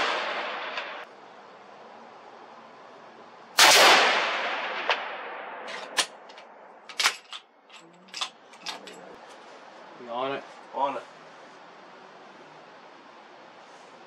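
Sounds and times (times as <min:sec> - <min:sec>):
rifle shot: 0:00.0 - 0:01.0, 0:03.6 - 0:06.2.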